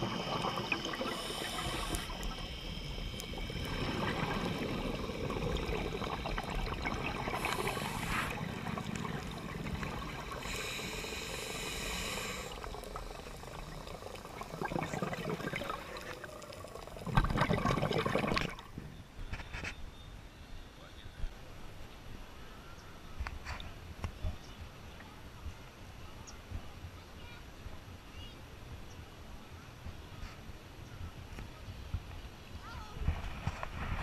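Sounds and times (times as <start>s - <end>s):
bubbling underwater: 0.0s - 18.7s
underwater rush of water: 0.0s - 18.8s.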